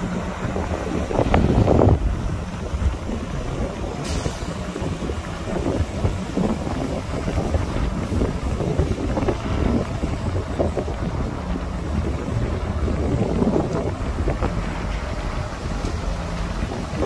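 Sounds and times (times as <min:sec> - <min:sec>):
earthmoving machinery rumbling: 0:00.0 - 0:17.0
wind buffeting microphone: 0:00.0 - 0:17.0.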